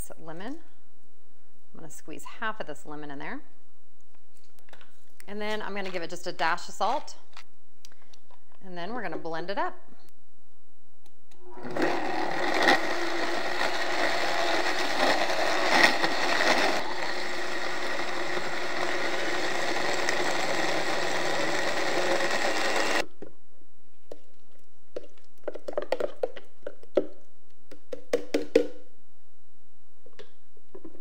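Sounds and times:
blender motor running: 11.5 - 23.1.

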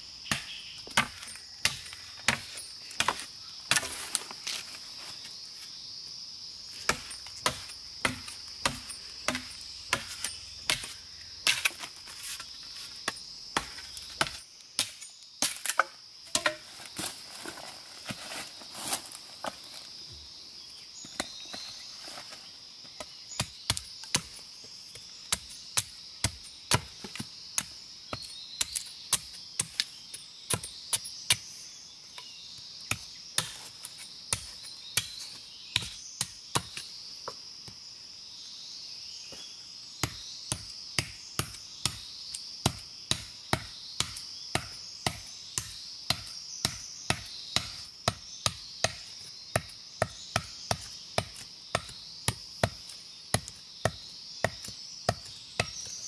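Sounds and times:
machete chopping bamboo: 0.2 - 4.2, 6.9 - 11.9, 13.0 - 16.7.

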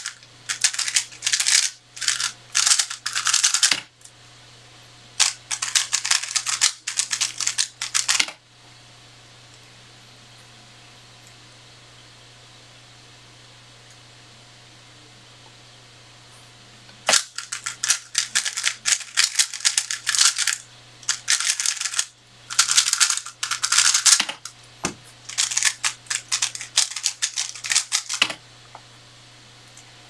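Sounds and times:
puzzle cube clicking: 0.5 - 3.8, 17.1 - 24.5, 25.3 - 28.4.

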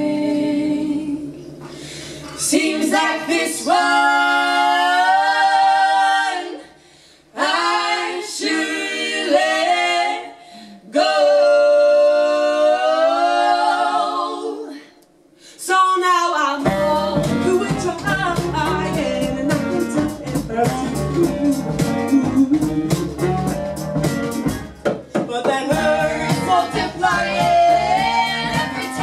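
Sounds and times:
group vocal harmony: 0.0 - 15.9, 16.6 - 23.9, 25.2 - 29.0
upright bass: 16.6 - 29.0.

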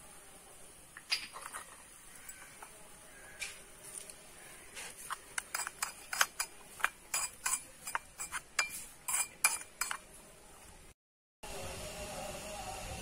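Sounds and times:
metal spoon clinking in pot: 5.4 - 10.1.

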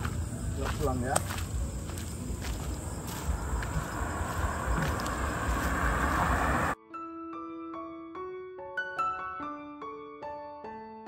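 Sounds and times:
slow piano melody: 3.7 - 11.0.

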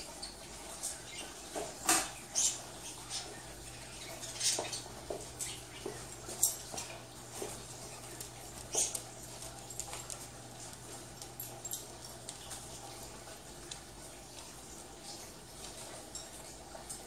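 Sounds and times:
dog claws on hardwood floor: 4.5 - 14.6.

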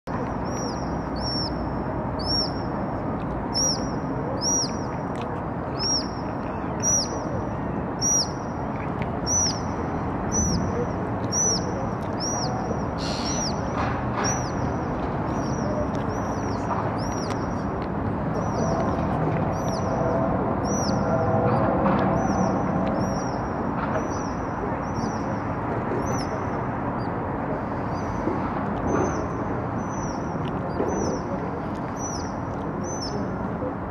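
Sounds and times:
city traffic rumble: 0.0 - 33.9
otter shrill high-pitched call: 13.0 - 13.6.

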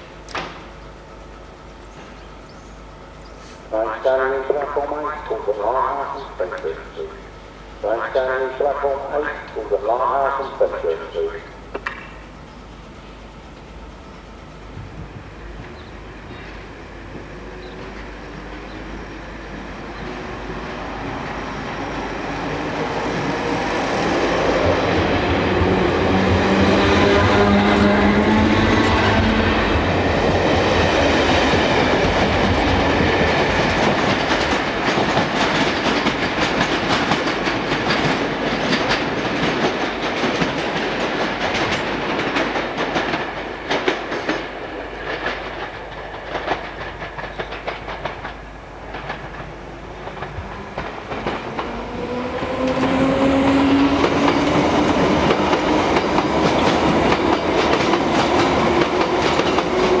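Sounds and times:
train traction motors whining: 0.0 - 60.0
train wheels clicking over rail joints: 14.9 - 60.0.

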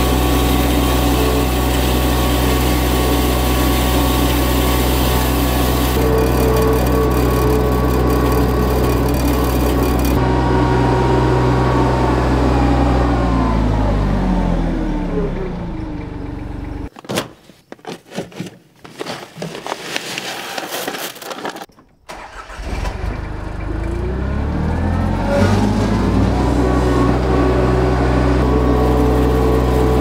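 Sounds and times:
tractor engine running: 0.0 - 16.9, 21.9 - 30.0
seed poured from plastic bag: 19.0 - 21.7.

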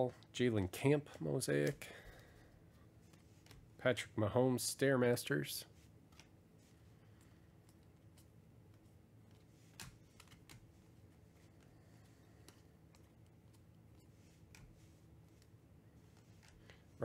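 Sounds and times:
cards flipped by hand: 6.0 - 16.8.

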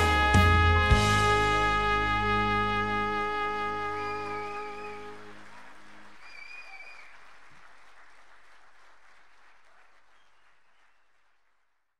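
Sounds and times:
held music chord: 0.0 - 5.5
short high whistle: 3.9 - 5.2, 6.2 - 7.1
audience applauding: 4.0 - 11.8.

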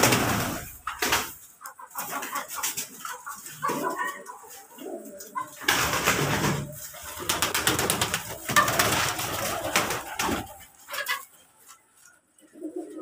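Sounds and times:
pigeons cooing: 3.4 - 11.3, 12.4 - 13.0.

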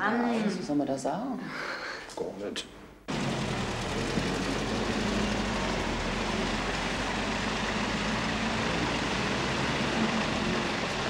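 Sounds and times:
car engine running: 3.1 - 11.0
road noise hiss: 3.1 - 11.0.

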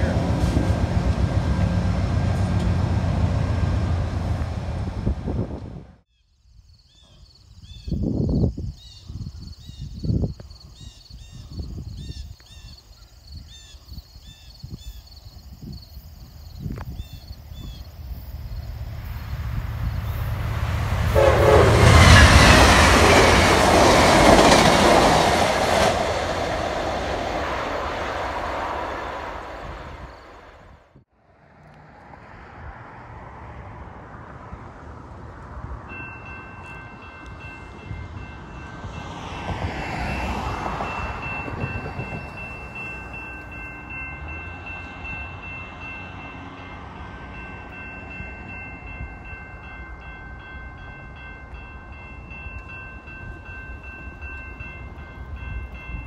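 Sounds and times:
train passing at speed: 0.0 - 6.0, 13.4 - 56.0
train horn: 20.8 - 24.1
level crossing warning bell: 35.8 - 56.0.

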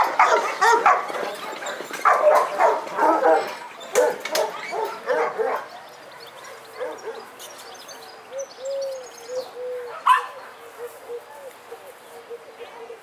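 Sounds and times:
dogs barking: 0.0 - 7.4, 9.8 - 11.0.

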